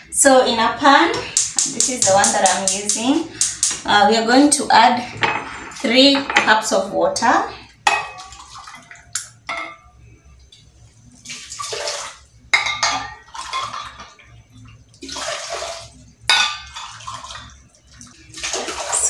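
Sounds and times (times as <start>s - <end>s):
water pouring: 8.1s - 9.4s, 10.4s - 12.4s, 13.1s - 19.0s.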